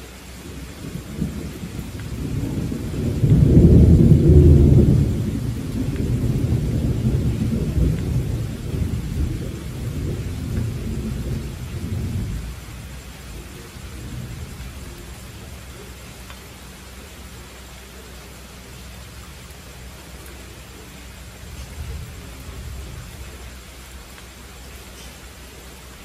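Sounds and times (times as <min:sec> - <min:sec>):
steady rain: 0:00.0 - 0:26.0
rolling thunder: 0:00.4 - 0:16.9, 0:20.7 - 0:24.8.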